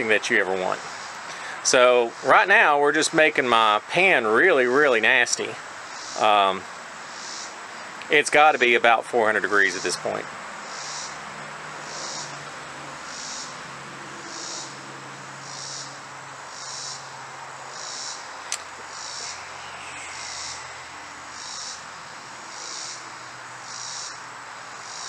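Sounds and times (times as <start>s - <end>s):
insect pulsed buzzes: 0.0s - 1.3s, 5.6s - 25.0s
sharp click: 18.5s - 18.7s.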